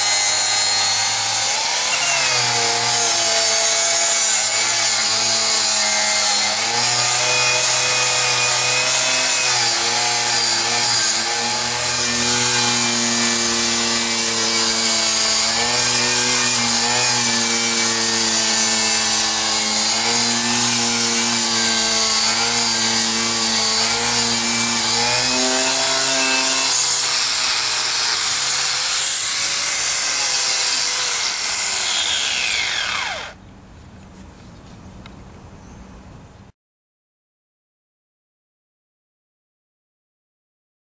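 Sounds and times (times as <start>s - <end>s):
angle grinder wire brush on metal: 0.0s - 33.3s
grinder winding down: 6.3s - 33.4s.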